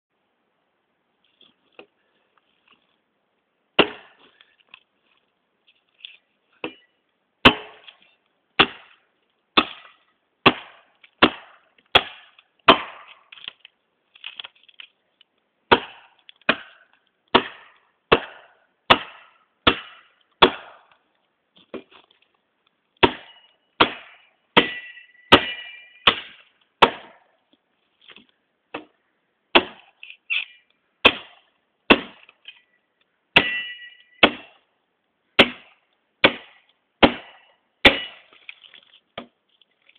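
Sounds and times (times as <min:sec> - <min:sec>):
machete chopping wood: 0:03.8 - 0:04.4, 0:07.4 - 0:08.0, 0:08.6 - 0:09.0, 0:09.6 - 0:13.5, 0:15.7 - 0:21.0, 0:23.0 - 0:27.3, 0:28.7 - 0:30.0, 0:31.0 - 0:32.4, 0:33.4 - 0:34.6, 0:35.4 - 0:38.5, 0:39.2 - 0:39.4
metallic ring of blade: 0:24.6 - 0:26.0, 0:33.4 - 0:34.2.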